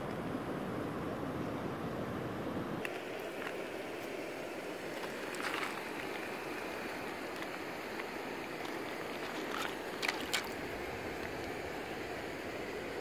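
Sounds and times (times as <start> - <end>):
creek water over gravel: 2.8 - 13.0
hand splashing water: 7.3 - 10.6.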